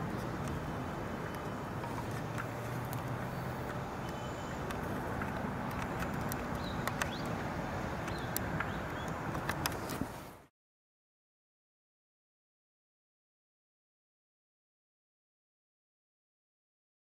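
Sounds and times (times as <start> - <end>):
low vehicle engine hum: 0.0 - 10.5
road traffic rumble: 0.0 - 10.5.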